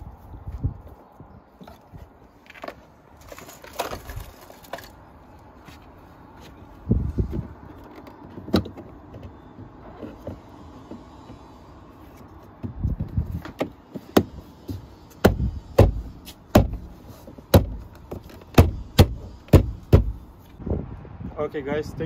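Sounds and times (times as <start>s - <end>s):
knocks on door panel: 18.6s - 20.2s.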